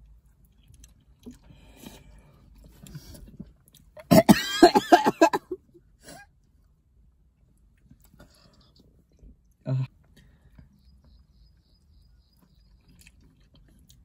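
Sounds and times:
faint eating sounds: 0:00.0 - 0:04.2, 0:05.5 - 0:14.0
person coughing and gasping: 0:04.0 - 0:06.2.

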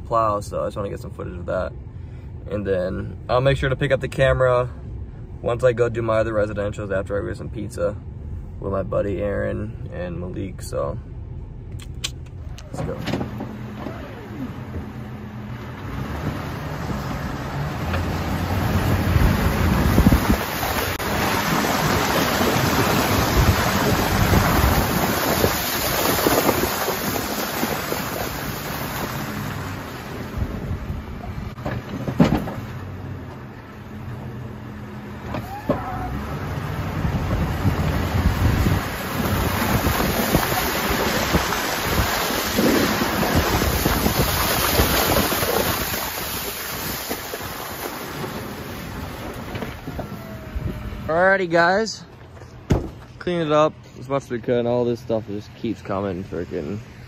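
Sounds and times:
truck engine and tyres: 0:00.0 - 0:57.0
plow blade scraping slush: 0:12.8 - 0:51.4.

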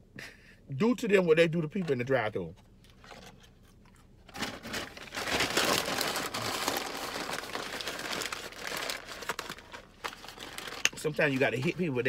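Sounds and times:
paper packaging crumpling: 0:04.3 - 0:12.0.

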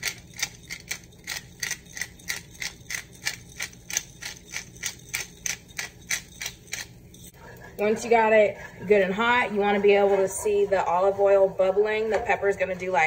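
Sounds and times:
pepper grinder crunching: 0:00.0 - 0:07.3.

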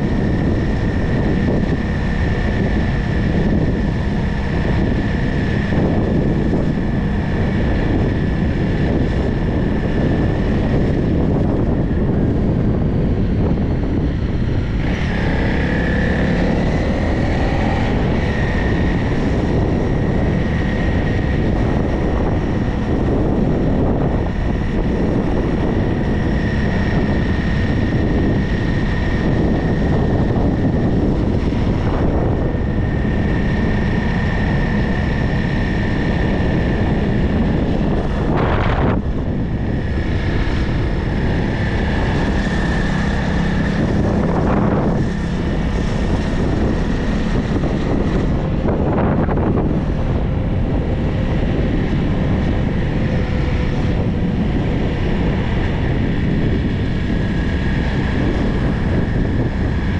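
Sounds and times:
steady high whine: 0:00.0 - 0:59.9
vehicle road noise: 0:00.0 - 0:59.9
wind rushing over microphone: 0:00.0 - 0:59.9.

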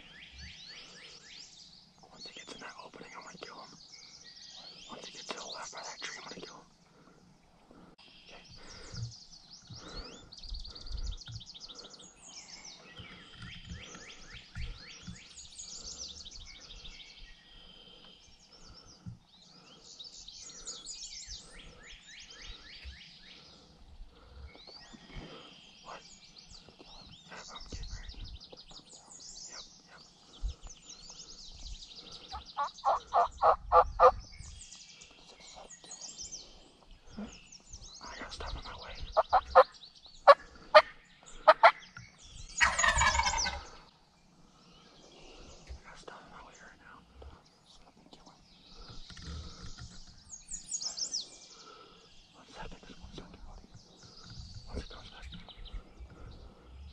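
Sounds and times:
songbirds chirping: 0:00.0 - 0:56.9
turkey gobbling: 0:32.4 - 0:34.1, 0:39.2 - 0:39.6, 0:40.3 - 0:41.8, 0:42.6 - 0:43.7.

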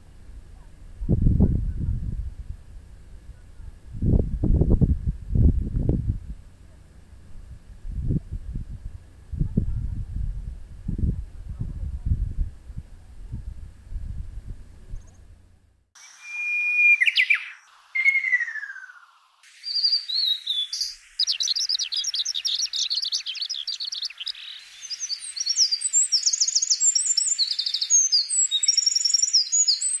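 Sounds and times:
fast high bird trill: 0:16.0 - 0:30.0
high rapid birdsong: 0:16.0 - 0:30.0
songbird whistles: 0:16.0 - 0:30.0.

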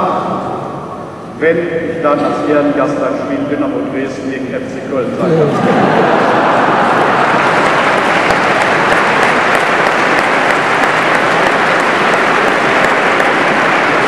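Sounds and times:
congregation applauding: 0:05.5 - 0:14.0.

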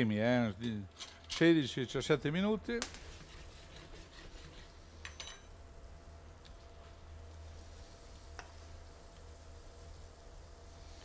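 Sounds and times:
rice sizzling in pan: 0:04.0 - 0:11.0.

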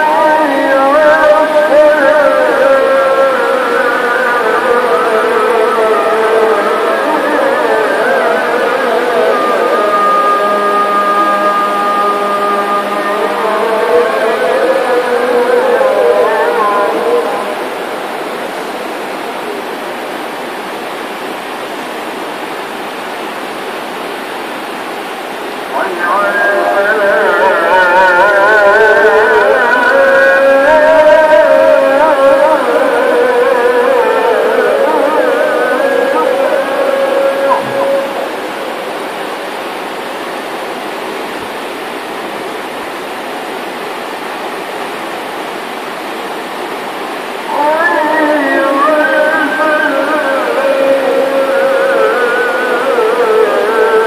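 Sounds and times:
running water rushing: 0:00.0 - 0:54.0
steady rushing noise: 0:36.9 - 0:47.6.

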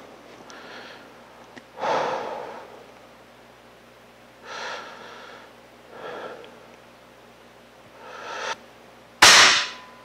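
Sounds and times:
man breathing: 0:00.5 - 0:02.9, 0:04.4 - 0:06.8, 0:08.0 - 0:08.6.

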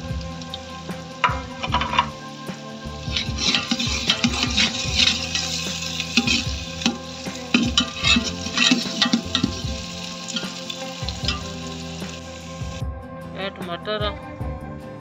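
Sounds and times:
oil sizzling: 0:00.0 - 0:12.8
metal spoon scraping pot: 0:01.2 - 0:02.3, 0:03.0 - 0:11.8.

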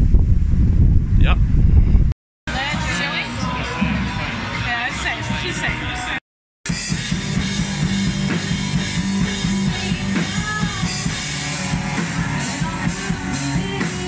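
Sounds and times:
drums: 0:00.0 - 0:14.0
person singing: 0:02.5 - 0:06.2, 0:09.6 - 0:11.2, 0:12.0 - 0:14.0
live rock band: 0:02.5 - 0:14.0
electric guitar: 0:06.7 - 0:14.0.

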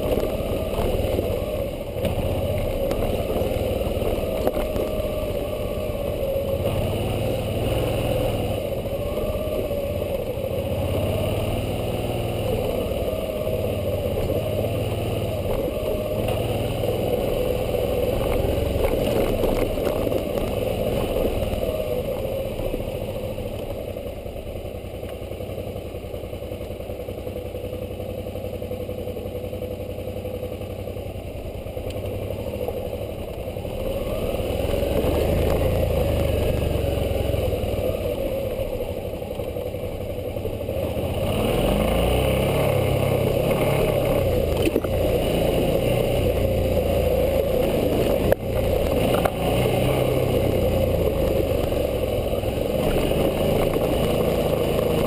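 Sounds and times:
motorcycle engine running: 0:00.0 - 0:55.0.

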